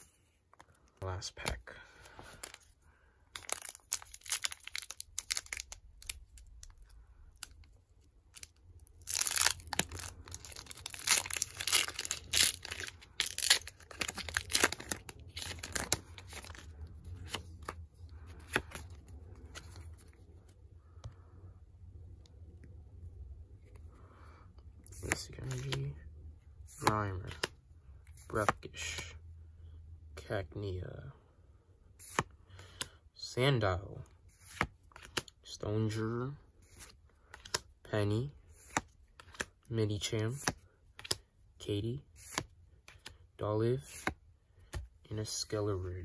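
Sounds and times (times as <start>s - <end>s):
foil wrapper crinkling and tearing: 3.4s - 6.8s, 8.4s - 16.6s.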